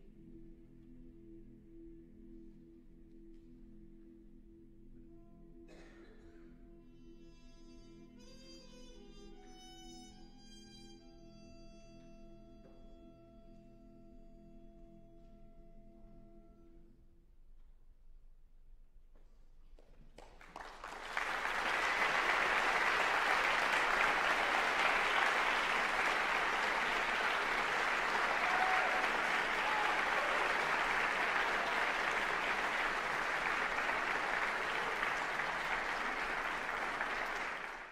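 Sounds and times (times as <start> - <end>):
audience applauding: 20.2 - 37.9.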